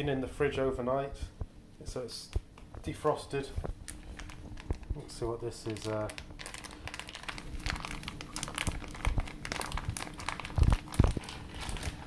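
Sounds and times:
plastic pouch crinkling: 3.7 - 12.0.

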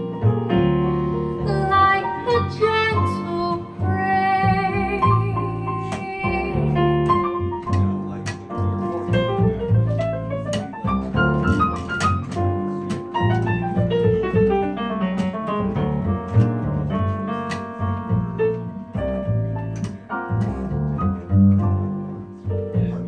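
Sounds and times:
upright bass line: 0.0 - 23.0.

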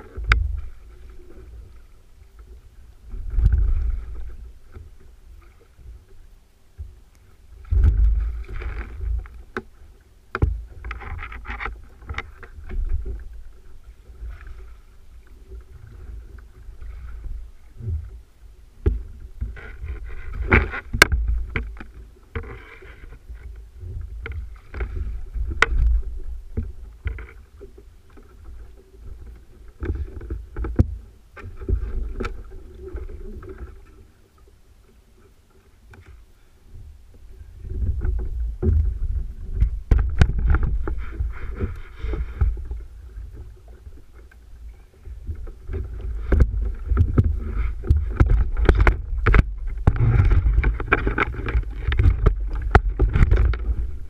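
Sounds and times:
water sloshing against hull: 0.0 - 54.0
wind buffeting microphone: 45.2 - 54.0.

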